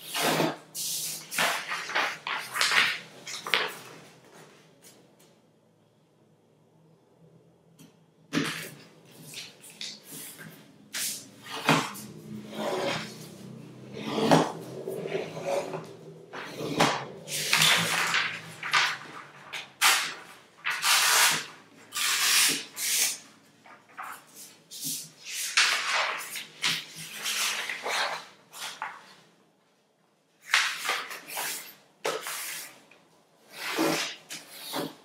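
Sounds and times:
paper rustling and creasing: 0:00.1 - 0:04.6, 0:15.2 - 0:29.3.

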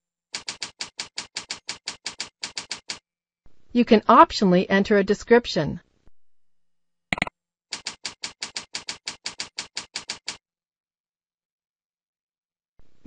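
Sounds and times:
keyboard typing: 0:00.3 - 0:03.0, 0:07.1 - 0:10.4.

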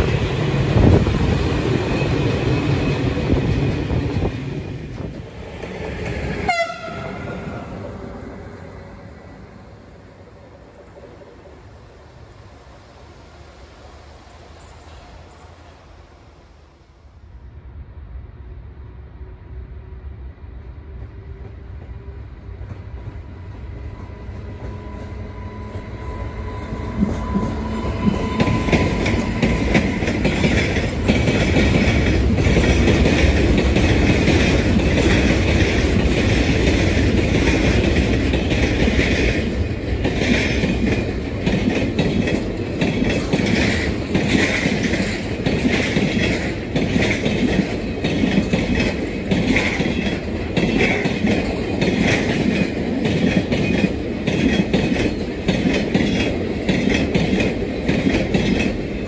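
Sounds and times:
freight train rumble: 0:00.0 - 0:59.0
wheels clacking over rail joints: 0:26.7 - 0:59.0.

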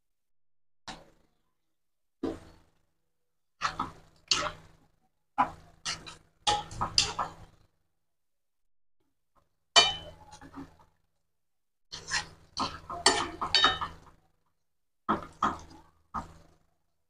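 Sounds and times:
spatula scraping frying pan: 0:03.6 - 0:04.7, 0:05.4 - 0:07.5, 0:11.9 - 0:14.1
spatula knocking against pan: 0:09.8 - 0:10.7, 0:12.0 - 0:14.0.

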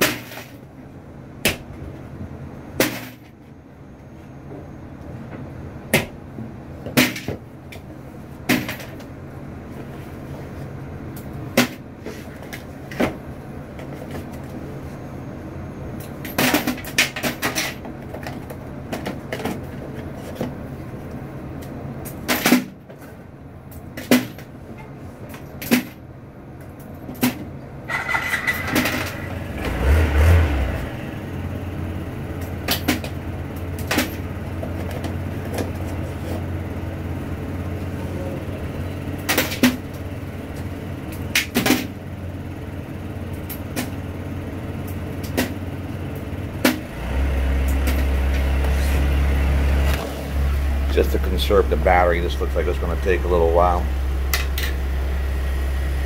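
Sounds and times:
low steady hum: 0:47.4 - 0:56.0.

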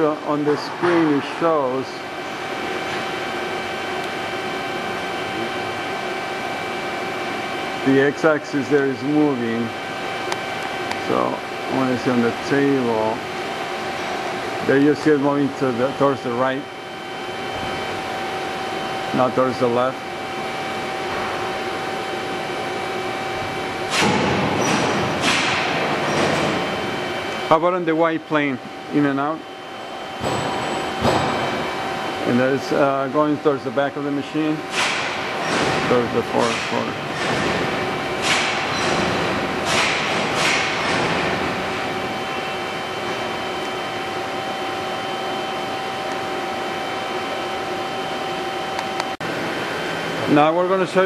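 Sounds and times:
machining center humming: 0:00.0 - 0:51.0
thin machine whine: 0:00.0 - 0:51.0.

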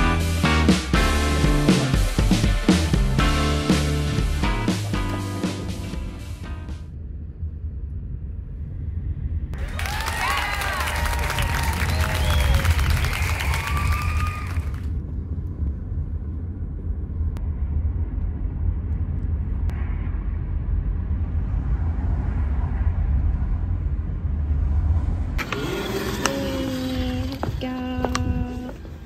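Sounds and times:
car engine and road rumble: 0:00.0 - 0:10.0, 0:11.6 - 0:29.0.

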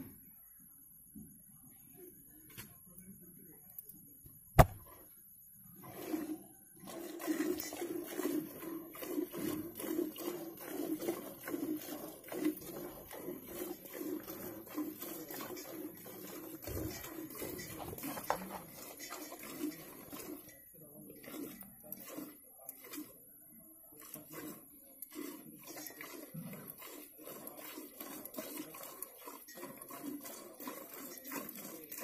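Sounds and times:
sharp knock: 0:04.6 - 0:04.8
milk squirting into a steel pot: 0:05.8 - 0:32.0.

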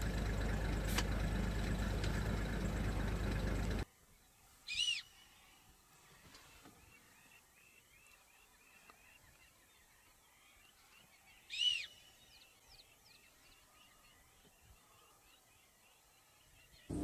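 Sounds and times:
birds chirping: 0:00.0 - 0:17.0
loud whistled bird call: 0:04.7 - 0:05.2, 0:11.5 - 0:12.1.

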